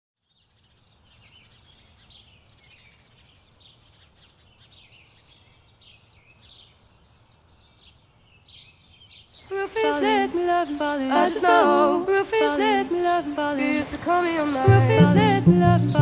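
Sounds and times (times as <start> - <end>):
small birds chirping: 0.2 - 12.0.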